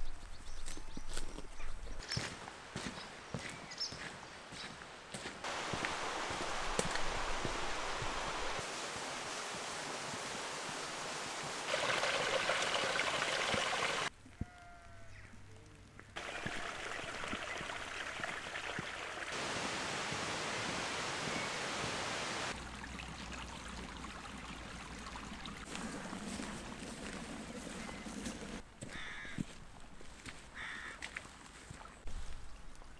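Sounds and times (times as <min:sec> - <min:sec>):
steady rushing hiss: 0:05.4 - 0:14.1, 0:19.2 - 0:22.6
bird calling: 0:25.7 - 0:29.4, 0:30.6 - 0:31.0.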